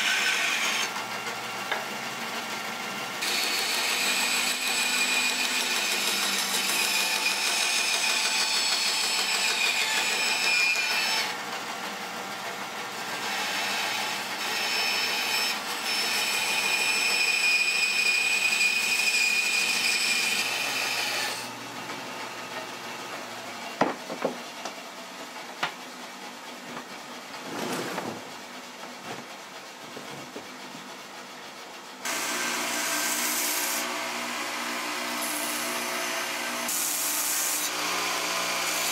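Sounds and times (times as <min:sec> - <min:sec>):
band saw cutting wood: 0:00.0 - 0:24.2, 0:32.0 - 0:38.9
belt sander running: 0:32.0 - 0:38.9.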